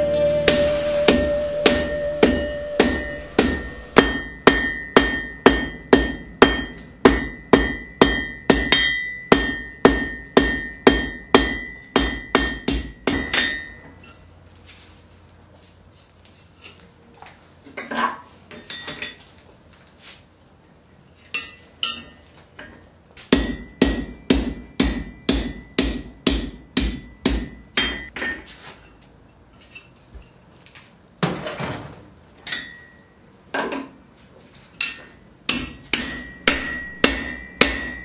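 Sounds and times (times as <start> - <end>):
hammer striking iron on anvil: 0.4 - 14.2, 21.4 - 22.2, 23.3 - 28.5, 32.5 - 33.0, 34.8 - 38.0.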